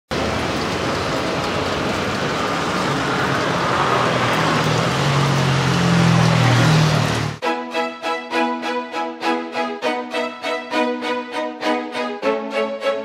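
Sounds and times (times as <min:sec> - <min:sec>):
roadside traffic noise: 0:00.1 - 0:07.5
music: 0:07.4 - 0:13.0.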